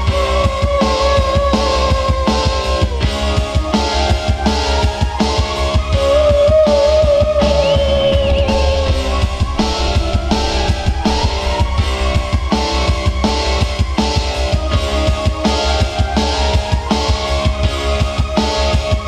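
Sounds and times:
steady drum beat: 7.3 - 19.0.

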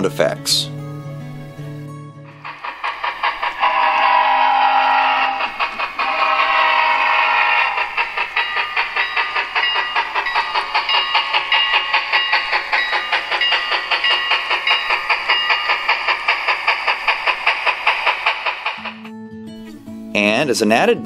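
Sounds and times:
model steam locomotive chuffs: 2.3 - 19.1.

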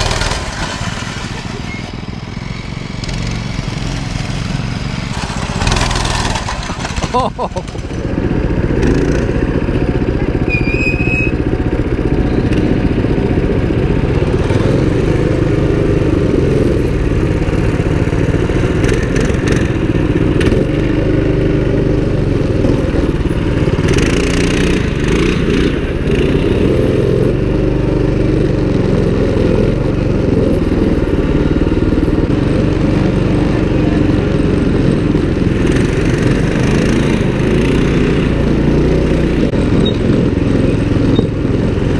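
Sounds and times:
small motorbike engine revving: 0.0 - 8.1, 8.7 - 41.9.

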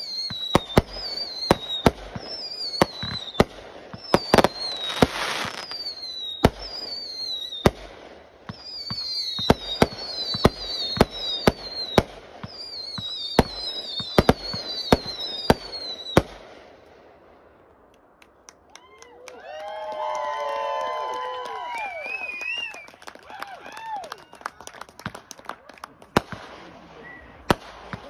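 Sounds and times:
falling firework whistles: 0.0 - 7.9, 8.5 - 16.4, 21.7 - 22.9
fireworks bangs: 0.0 - 17.9, 24.6 - 28.0.

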